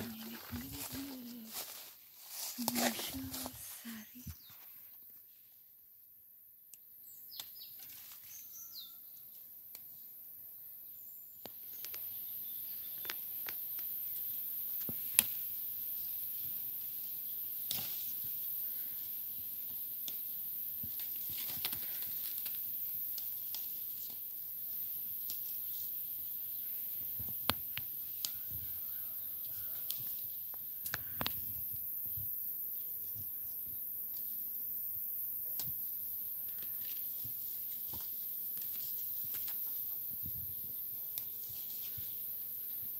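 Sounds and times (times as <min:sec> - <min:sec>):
leaves and twigs rustling: 0:00.0 - 0:05.5, 0:07.3 - 0:10.1, 0:11.4 - 0:34.4, 0:35.0 - 0:42.9
steady high hiss: 0:07.0 - 0:42.9
twigs snapping and clicking: 0:20.9 - 0:24.3, 0:27.2 - 0:28.5, 0:29.6 - 0:31.4.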